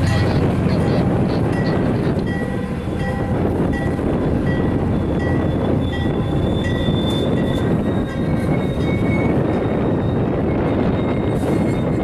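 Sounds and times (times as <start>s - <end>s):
train cars rumbling past: 0.0s - 12.0s
high-pitched wheel squeals: 4.9s - 12.0s.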